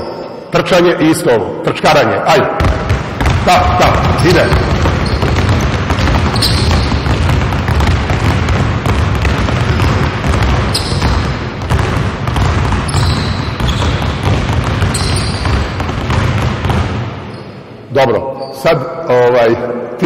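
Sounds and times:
sneaker squeaks: 0.0 - 0.6, 3.2 - 8.3, 8.9 - 17.8
basketballs bouncing on gym floor: 2.4 - 17.6.

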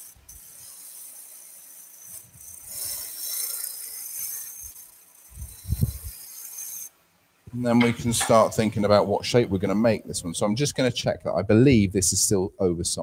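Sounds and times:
lathe gouge hissing on wood: 0.0 - 7.0.

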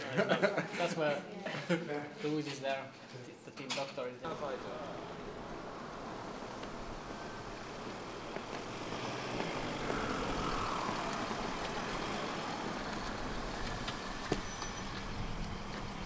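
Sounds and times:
car driving slowly past: 4.3 - 16.0
car engine idling: 4.3 - 16.0.

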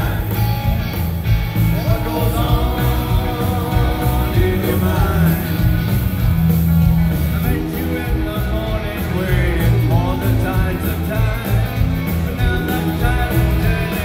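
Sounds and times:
man singing into microphone: 0.0 - 0.5, 1.7 - 5.8, 7.4 - 14.0
live rock band playing: 0.0 - 14.0.

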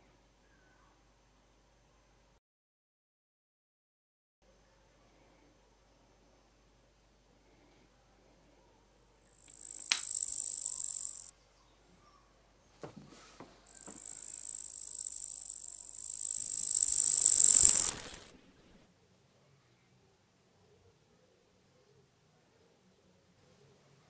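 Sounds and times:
shrill insect-like buzzing: 9.4 - 11.3, 13.7 - 18.4.

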